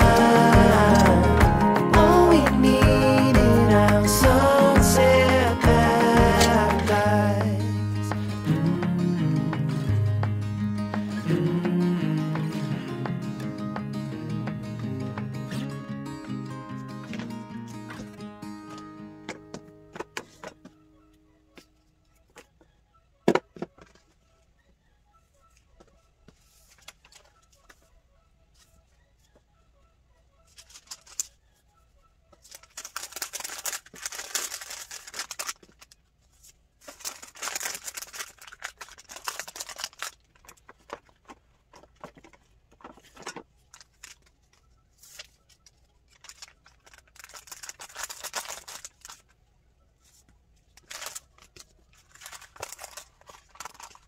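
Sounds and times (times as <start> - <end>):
paper and tissue rustling: 26.3 - 27.9, 30.5 - 31.4, 32.3 - 49.4, 50.0 - 54.0.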